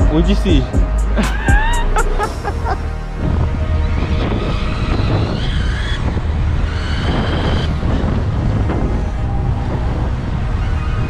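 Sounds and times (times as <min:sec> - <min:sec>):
road rumble: 0:00.0 - 0:11.0
wind buffeting microphone: 0:03.2 - 0:11.0.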